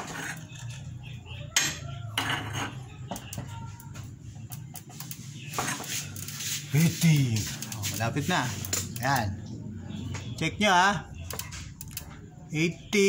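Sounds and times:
metallic clicks and clinks: 11.3 - 12.2.

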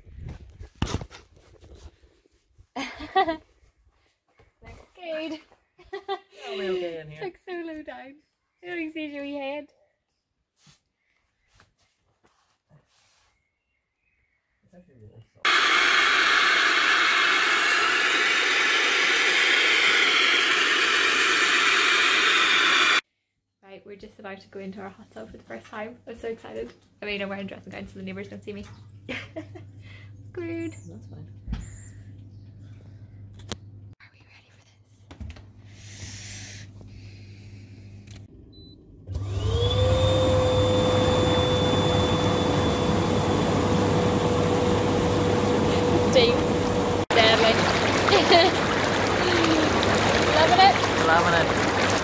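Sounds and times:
blower motor whine: 15.5 - 23.0, 36.8 - 52.0
hose water pouring into tub: 15.5 - 23.0, 47.1 - 52.0
rushing air and churning water: 47.1 - 52.0.

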